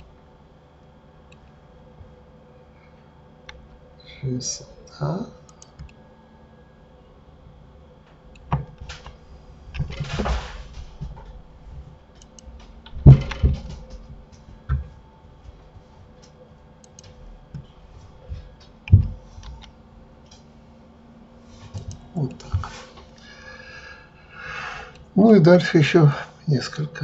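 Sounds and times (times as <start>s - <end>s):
keyboard keystrokes: 16.8s - 17.6s.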